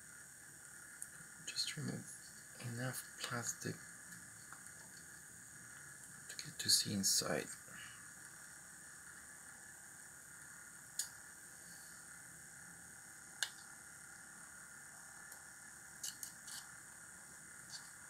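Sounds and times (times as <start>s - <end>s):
faint electrical whine: 0.0s - 18.0s
small tools clicking: 16.0s - 16.7s.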